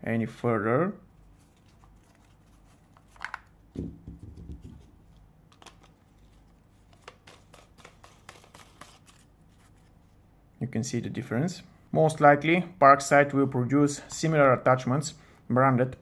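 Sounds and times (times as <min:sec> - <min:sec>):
plastic attachment clicks and rubbing: 0:02.9 - 0:03.5.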